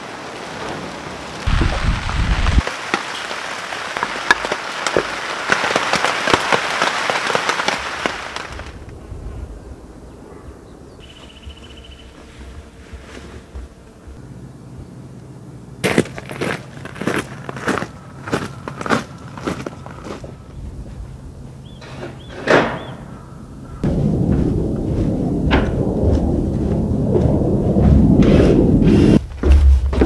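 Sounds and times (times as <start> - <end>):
heavy rain on a tarp: 0.0 - 8.8.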